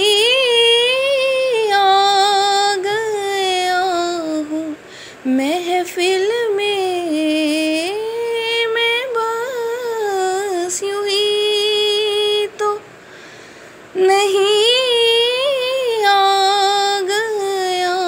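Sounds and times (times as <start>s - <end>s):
singer's breath: 4.8s - 5.3s, 13.0s - 13.9s.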